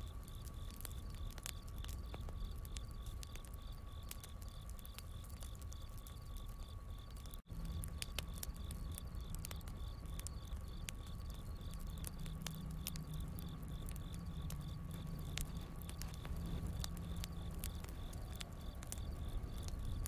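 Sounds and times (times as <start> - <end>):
campfire crackling and popping: 0.0 - 20.0
crickets chirping: 0.0 - 20.0
low rumble of flames: 0.0 - 20.0.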